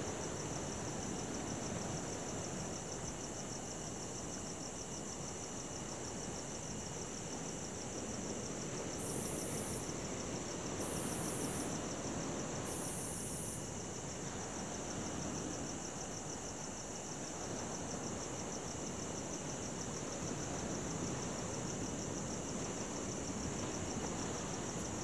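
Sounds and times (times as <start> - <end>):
crickets chirping: 0.0 - 25.0
high insect buzz: 9.0 - 13.9.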